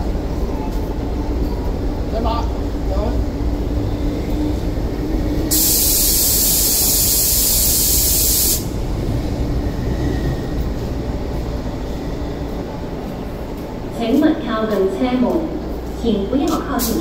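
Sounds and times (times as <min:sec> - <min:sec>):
electric train humming: 0:00.0 - 0:17.0
compressed air hissing: 0:05.5 - 0:08.8.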